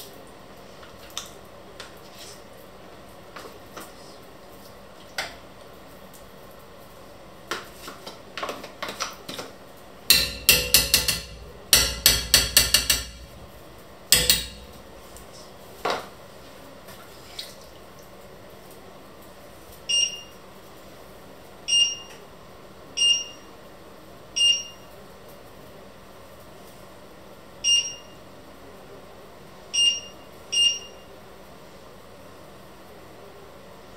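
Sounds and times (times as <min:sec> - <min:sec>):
spoon scraping and knocking: 0:10.1 - 0:13.5.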